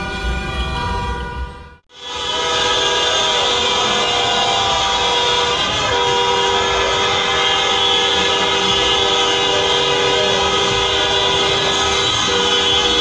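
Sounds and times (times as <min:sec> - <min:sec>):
car horns honking: 0:00.0 - 0:13.0
low steady horn notes: 0:00.0 - 0:13.0.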